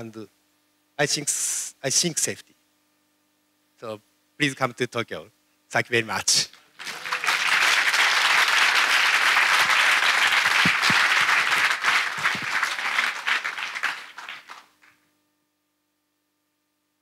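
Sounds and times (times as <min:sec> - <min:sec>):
audience applauding: 0:06.7 - 0:14.9.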